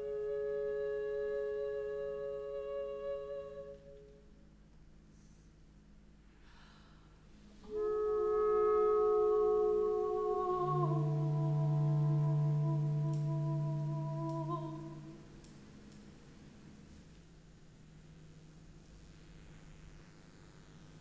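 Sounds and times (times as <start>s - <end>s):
low steady tone: 7.2s - 16.9s
chamber music held notes: 7.4s - 17.4s.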